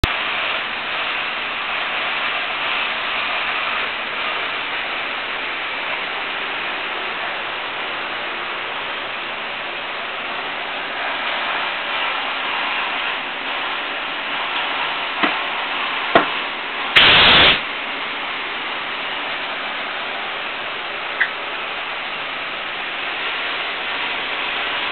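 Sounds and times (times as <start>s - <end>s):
loud blast of air: 16.9s - 17.7s
pneumatic machine hissing: 17.0s - 17.6s.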